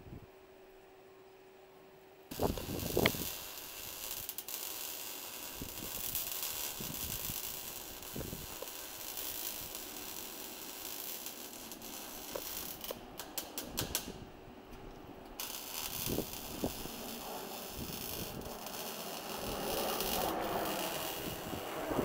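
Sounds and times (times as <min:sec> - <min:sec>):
jets passing overhead: 0:07.6 - 0:22.0.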